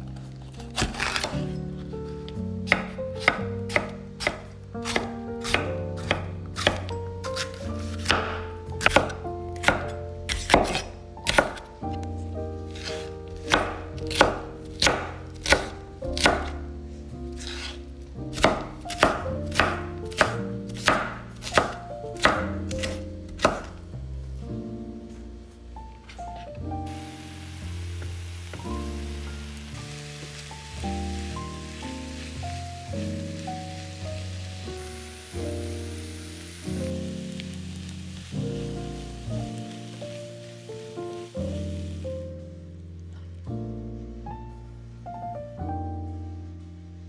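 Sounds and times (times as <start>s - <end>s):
knife chopping on wooden board: 0.6s - 1.4s, 2.7s - 11.7s, 12.8s - 16.6s, 17.4s - 23.8s.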